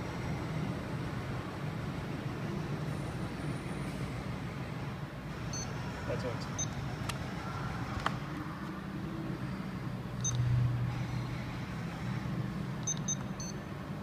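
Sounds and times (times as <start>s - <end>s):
steady low hum: 0.0s - 14.0s
short high keypad beeps: 12.8s - 13.6s.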